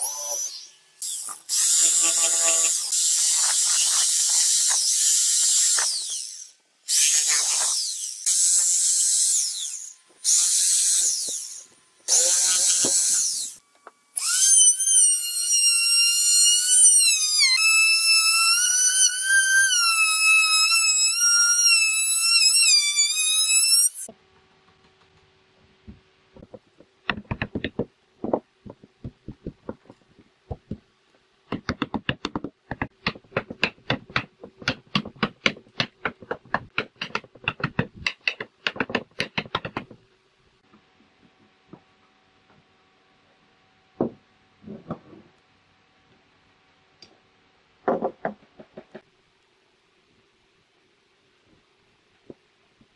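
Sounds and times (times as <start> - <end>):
jigsaw cutting wood: 1.1 - 13.6.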